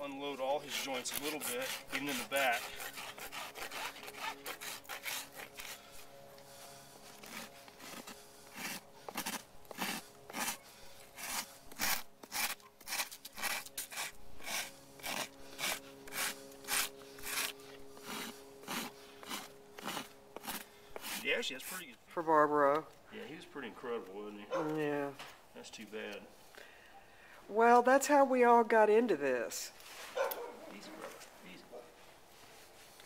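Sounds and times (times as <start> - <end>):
rasp filing a hoof: 0.4 - 6.0, 7.0 - 21.4.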